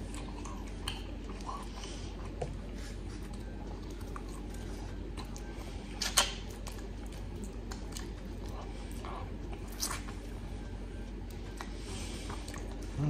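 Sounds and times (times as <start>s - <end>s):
faint low hum: 0.0s - 13.0s
mouth clicks and lip smacks: 6.0s - 6.6s.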